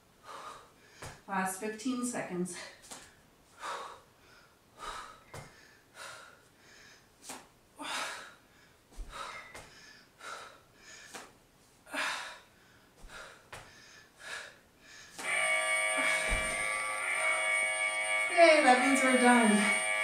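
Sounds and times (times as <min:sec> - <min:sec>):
woman breathing hard: 0:00.1 - 0:01.3, 0:02.5 - 0:15.3.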